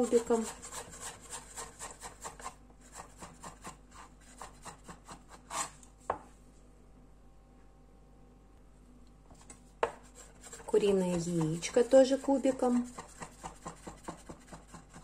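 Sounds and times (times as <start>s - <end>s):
knife chopping on wooden board: 9.8s - 11.7s, 12.8s - 15.0s.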